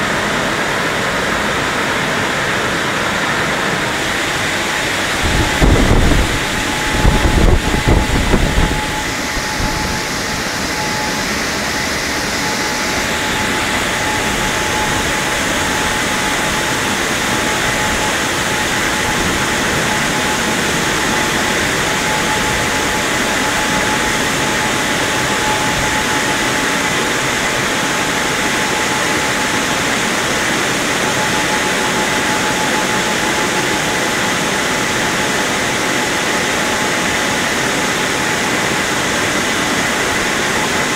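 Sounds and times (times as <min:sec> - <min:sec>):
car wash dryer blowers: 0:00.0 - 0:40.9
heavy low knocks: 0:04.5 - 0:11.2.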